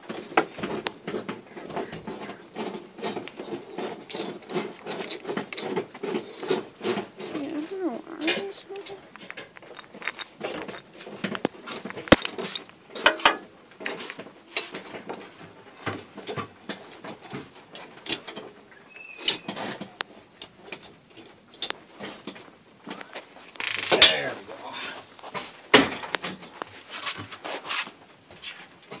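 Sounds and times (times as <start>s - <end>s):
boxes and tools knocking: 0.0s - 14.0s.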